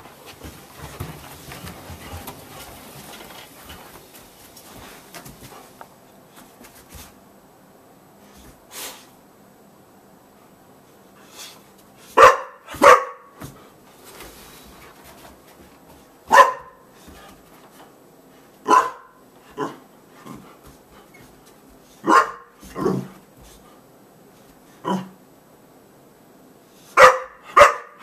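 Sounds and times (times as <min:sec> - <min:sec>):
dog barking: 0:12.2 - 0:13.4, 0:16.3 - 0:16.8, 0:18.6 - 0:19.8, 0:22.0 - 0:23.0, 0:27.0 - 0:28.0.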